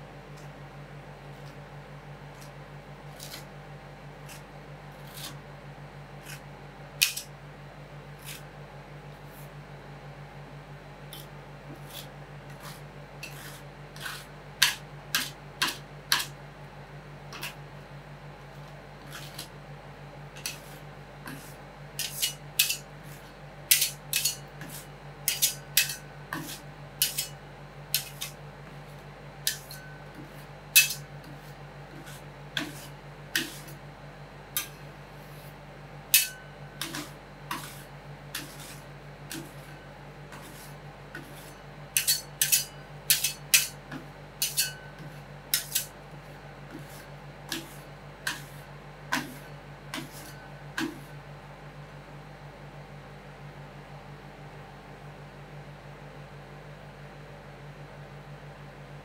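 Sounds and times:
steady low hum: 0.0 - 59.0
metal spatulas clacking on cold plate: 22.0 - 22.8, 23.7 - 24.4, 25.3 - 26.0, 27.0 - 27.3, 30.8 - 31.0, 36.2 - 37.6, 42.0 - 43.8, 44.4 - 45.9.

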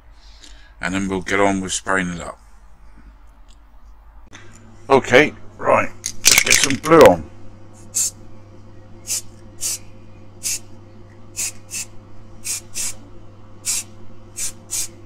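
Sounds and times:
steady low hum: 0.0 - 15.0
spray paint can hissing: 9.1 - 9.8, 10.4 - 10.6, 11.4 - 13.0, 13.6 - 15.0.

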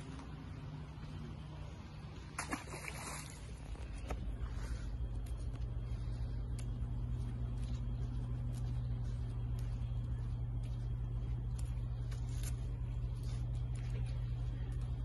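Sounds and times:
steady low hum: 0.0 - 15.0
trap splashing into water: 2.3 - 3.5.

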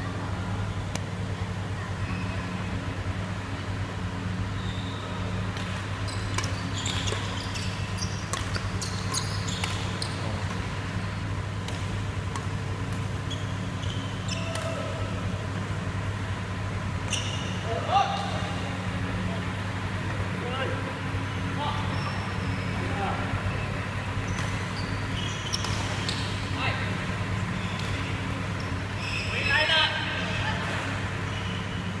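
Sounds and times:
shoes squeaking on court: 4.6 - 11.6, 12.4 - 14.8, 17.0 - 18.4, 21.7 - 22.8, 23.4 - 31.9
rackets hitting shuttlecock: 5.4 - 7.4, 8.2 - 10.8, 11.6 - 13.2, 14.4 - 15.0, 25.5 - 26.5.

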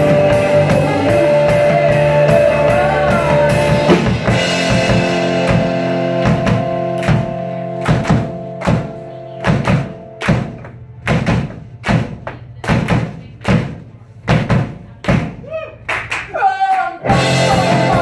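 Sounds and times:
electric guitar chord ringing: 0.0 - 10.9
drum kit steady beat: 0.0 - 15.8, 17.0 - 18.0.

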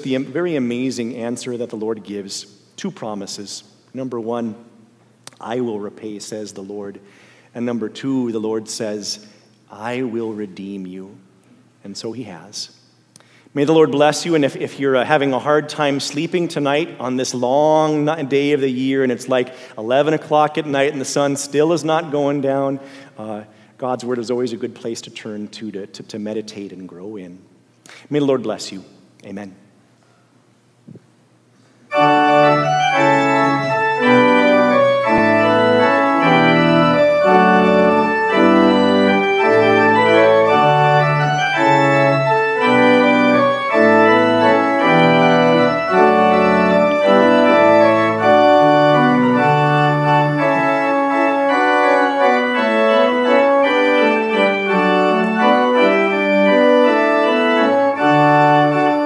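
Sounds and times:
low organ bass notes: 0.0 - 6.9, 13.6 - 25.6, 31.9 - 59.0
sustained organ chords: 0.0 - 12.7, 13.3 - 27.2, 31.8 - 59.0.

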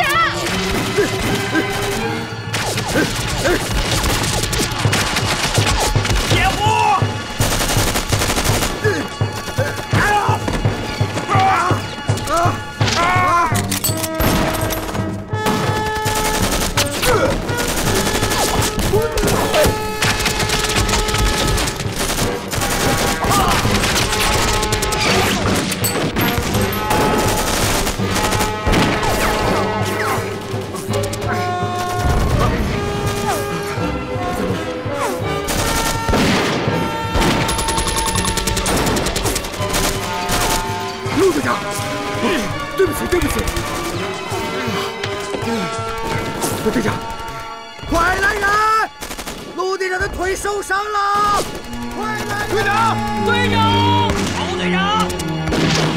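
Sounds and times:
dramatic music score: 0.0 - 55.9
rapid gunfire: 0.4 - 11.0, 15.4 - 33.5, 35.4 - 41.4, 42.8 - 44.2, 45.8 - 49.6, 51.2 - 55.9
gunshots: 0.4 - 11.3, 14.1 - 33.5, 35.4 - 41.5, 45.8 - 48.0, 49.0 - 49.6, 51.2 - 55.9
submachine gun burst: 37.2 - 40.6.

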